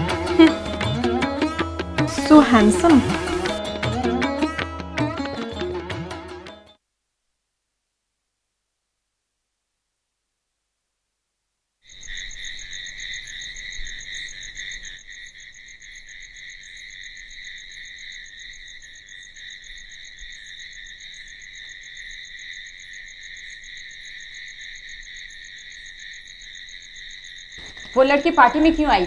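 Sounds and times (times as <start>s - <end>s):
crickets chirring: 11.8s - 29.0s.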